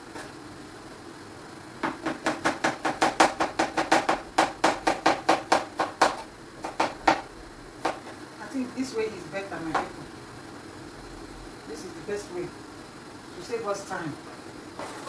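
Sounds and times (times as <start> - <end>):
knife chopping on cutting board: 1.8 - 8.2.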